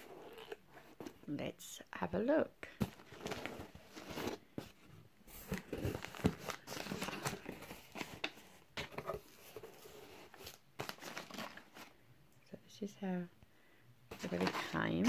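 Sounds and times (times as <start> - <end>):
packing paper rustling: 5.3 - 12.0, 14.1 - 15.0.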